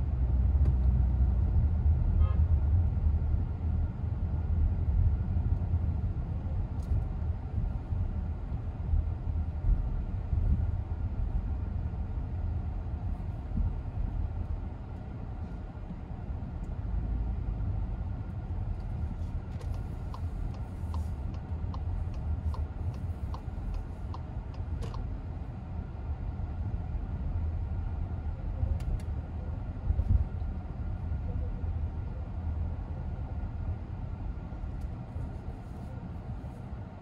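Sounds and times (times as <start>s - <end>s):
car engine and tyres rumbling: 0.0s - 37.0s
turn signal ticking: 18.8s - 25.1s.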